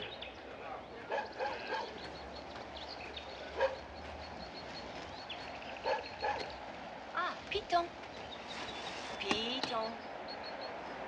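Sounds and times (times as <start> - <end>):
small dog barking and yipping: 1.1 - 2.0, 3.6 - 3.8, 5.8 - 6.6.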